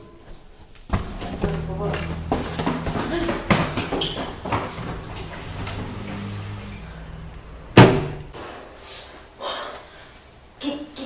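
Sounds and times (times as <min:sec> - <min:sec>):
low steady hum: 0:01.4 - 0:08.4
door slamming shut: 0:07.4 - 0:08.4.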